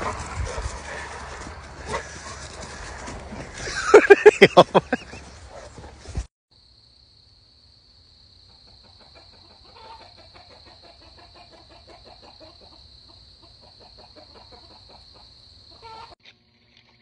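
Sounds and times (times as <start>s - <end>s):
chickens clucking: 0.0s - 5.9s, 8.5s - 16.2s.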